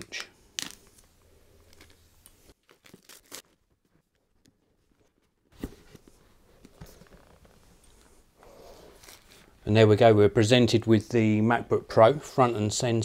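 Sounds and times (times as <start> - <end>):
plastic wrap crinkling and tearing: 1.7 - 3.8, 9.0 - 9.5.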